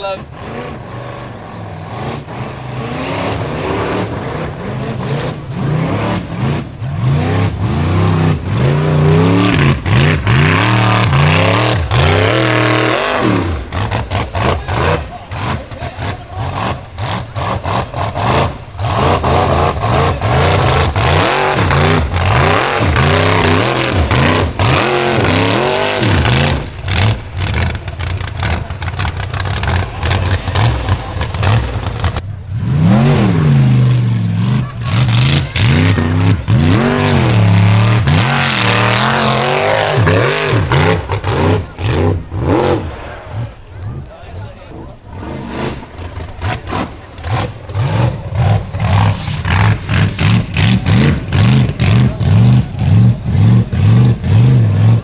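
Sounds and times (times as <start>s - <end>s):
buggy engine revving hard: 0.0s - 55.0s.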